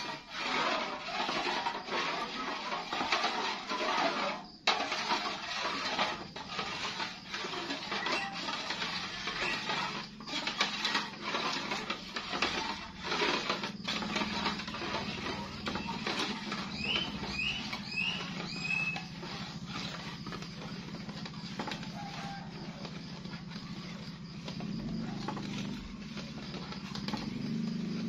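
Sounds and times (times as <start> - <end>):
spatula scraping batter in a pan: 0.0 - 28.0
high falling chirps: 16.7 - 19.2.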